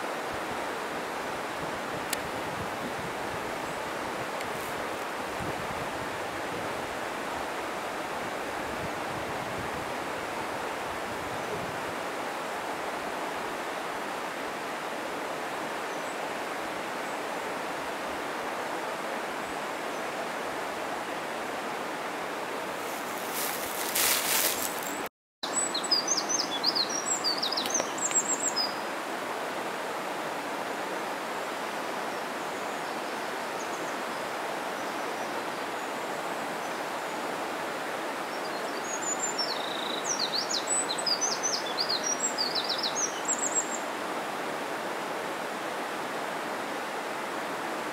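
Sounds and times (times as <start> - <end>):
mountain stream rushing: 0.0 - 47.9
small birds chirping: 22.8 - 28.8.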